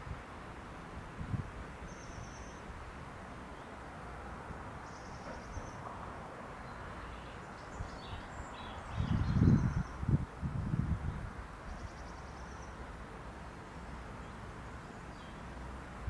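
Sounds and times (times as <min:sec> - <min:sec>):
wind through grass: 0:00.0 - 0:16.0
wind buffeting microphone: 0:01.0 - 0:01.7, 0:07.7 - 0:11.6
faint bird chirps: 0:01.9 - 0:02.7, 0:06.6 - 0:10.0, 0:11.7 - 0:12.8.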